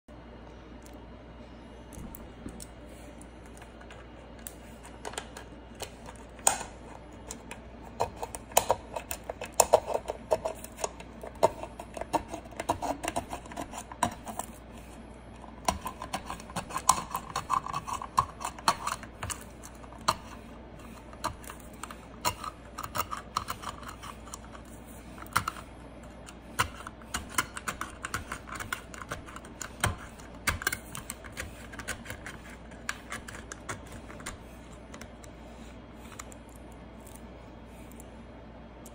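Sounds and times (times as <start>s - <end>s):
can opener clicking and crunching: 15.6s - 20.3s.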